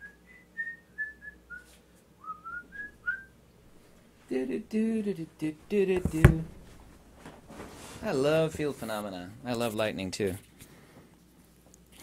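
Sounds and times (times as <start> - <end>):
man whistling a tune: 0.0 - 3.3
person speaking: 4.3 - 6.7.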